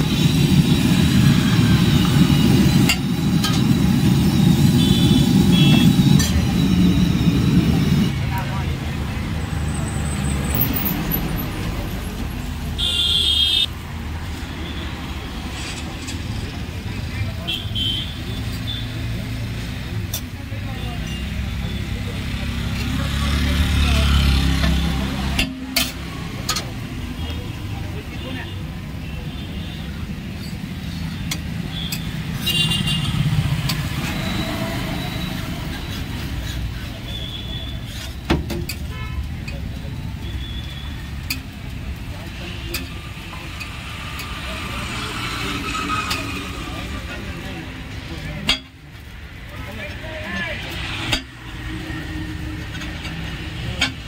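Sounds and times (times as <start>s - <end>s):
road traffic rumble: 0.0s - 54.0s
metal spatula scraping griddle: 35.6s - 37.2s, 37.8s - 38.8s.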